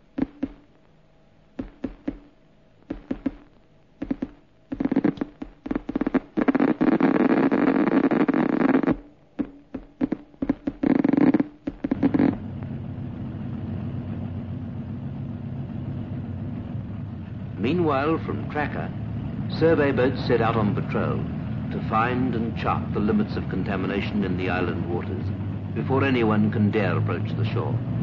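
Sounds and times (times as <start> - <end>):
helicopter rotor chopping: 1.6 - 2.3, 2.9 - 28.0
low engine hum: 11.0 - 28.0.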